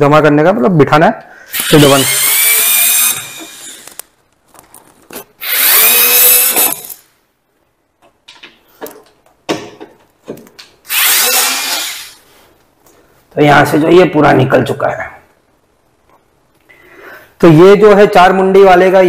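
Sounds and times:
cordless screwdriver whirring: 0:01.5 - 0:04.1, 0:05.4 - 0:07.0, 0:10.9 - 0:12.2.

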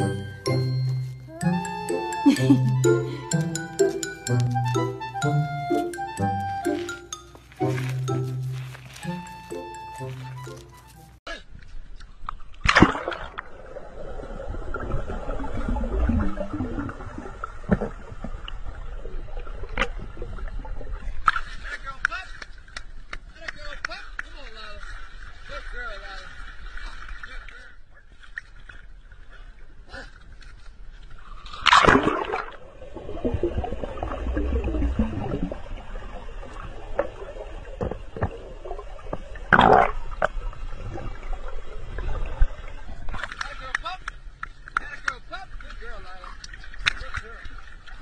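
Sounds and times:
dog splashing into water: 0:12.6 - 0:13.5
muffled underwater rumble and gurgling: 0:13.2 - 0:21.3, 0:32.6 - 0:43.4.

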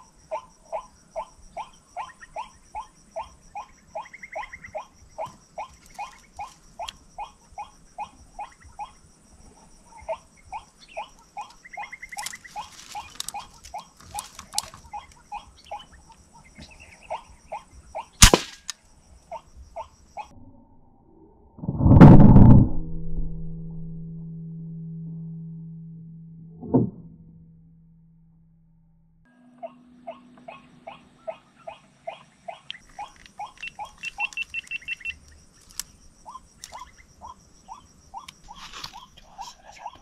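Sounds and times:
bird calling: 0:00.0 - 0:09.1, 0:09.9 - 0:18.7, 0:29.6 - 0:40.0
high insect whine: 0:00.0 - 0:20.3, 0:32.8 - 0:40.0
air rifle firing: 0:18.2 - 0:18.7.

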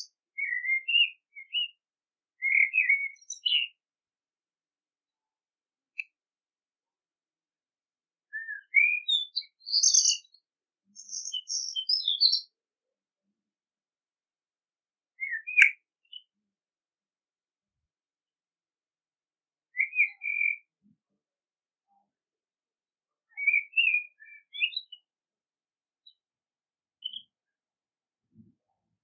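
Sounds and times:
blackbird singing: 0:00.0 - 0:01.8, 0:02.4 - 0:03.8, 0:08.3 - 0:12.6, 0:15.2 - 0:16.4, 0:19.7 - 0:21.0, 0:23.2 - 0:25.1, 0:27.0 - 0:27.4.

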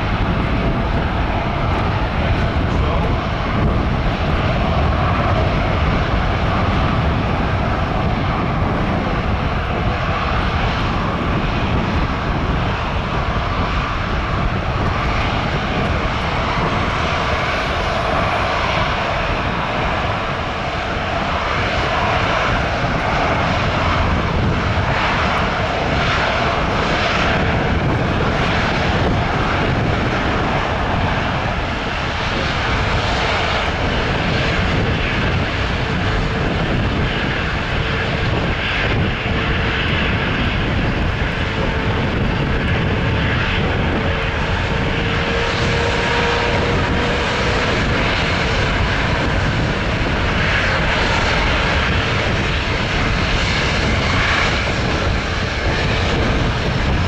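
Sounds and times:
jet engines running: 0:00.0 - 0:57.0.

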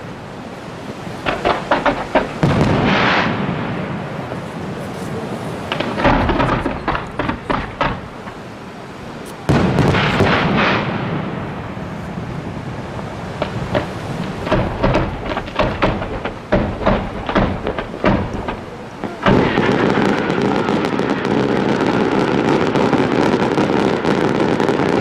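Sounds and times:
fireworks booming: 0:01.0 - 0:25.0
fireworks cracking: 0:01.0 - 0:25.0.

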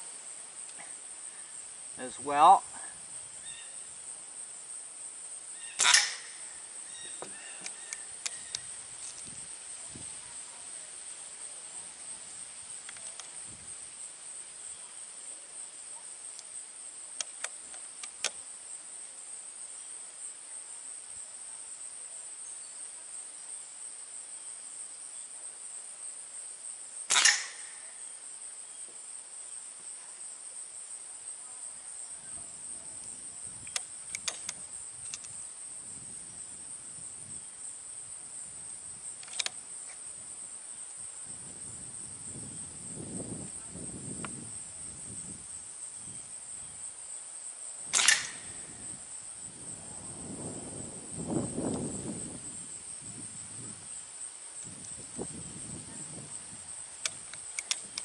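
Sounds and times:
high insect buzz: 0:00.0 - 0:58.0
air rifle shot: 0:05.8 - 0:06.4, 0:27.1 - 0:27.8, 0:47.9 - 0:48.7
faint clicks: 0:33.0 - 0:35.4, 0:39.2 - 0:40.0, 0:57.0 - 0:58.0.

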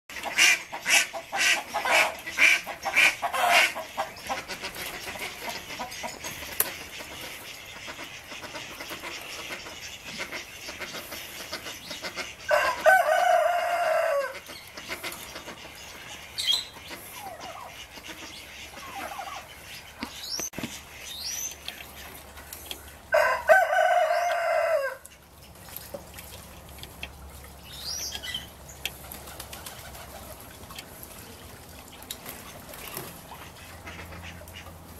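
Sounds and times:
rooster crowing: 0:12.5 - 0:14.4, 0:23.1 - 0:25.0
small birds chirping: 0:14.4 - 0:23.0.

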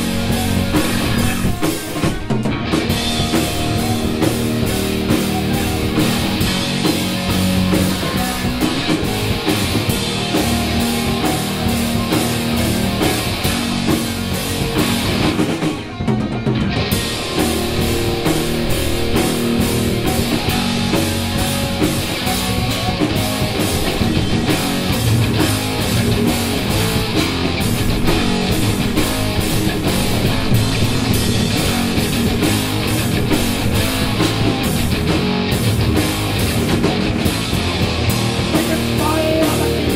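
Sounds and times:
bass guitar: 0:00.0 - 0:39.9
distorted electric guitars: 0:00.0 - 0:39.9
drum kit: 0:00.0 - 0:39.9.

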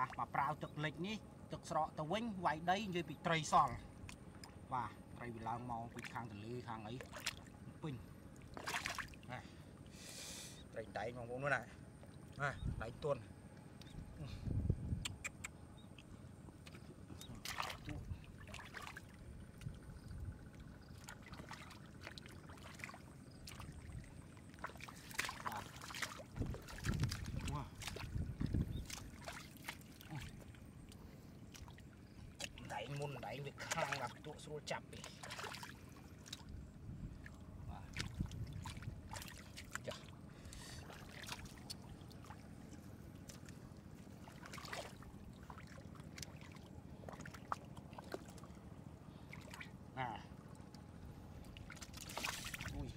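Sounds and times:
low steady rumble: 0:00.0 - 0:52.9
hands splashing in muddy water: 0:08.5 - 0:09.2, 0:16.7 - 0:19.8, 0:20.9 - 0:33.0, 0:35.0 - 0:36.5, 0:43.2 - 0:48.5, 0:51.5 - 0:52.9.

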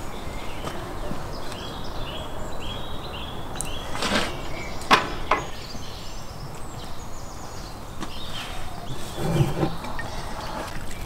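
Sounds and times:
outdoor background noise: 0:00.0 - 0:11.0
small birds chirping: 0:00.0 - 0:11.0.

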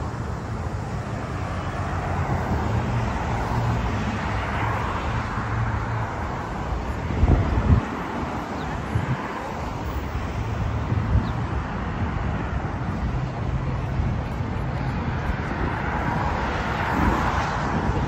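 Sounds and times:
cars driving past: 0:00.0 - 0:18.0.

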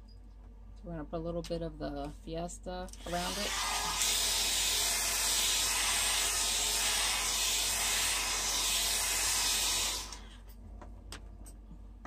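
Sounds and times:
hair dryer running: 0:03.0 - 0:10.4.

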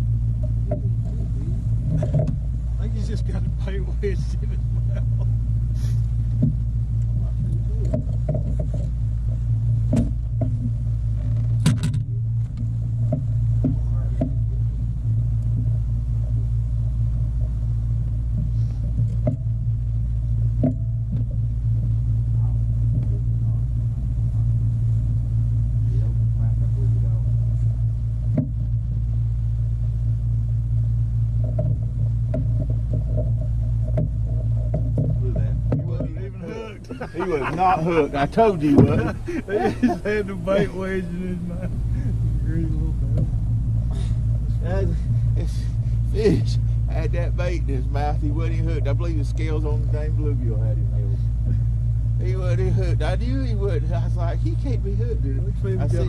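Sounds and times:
knocks and clicks of gear: 0:00.0 - 0:04.1, 0:06.0 - 0:16.4, 0:17.1 - 0:22.0, 0:22.8 - 0:23.5, 0:27.6 - 0:29.0, 0:31.3 - 0:36.4, 0:41.7 - 0:46.4
low motor hum: 0:00.0 - 0:56.0.

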